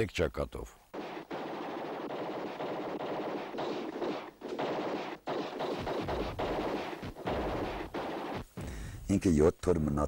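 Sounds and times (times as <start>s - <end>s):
machine-gun bursts: 0.9s - 8.5s.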